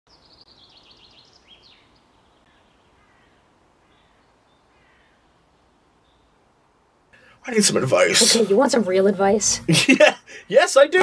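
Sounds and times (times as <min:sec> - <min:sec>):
small birds chirping: 0:00.1 - 0:07.5.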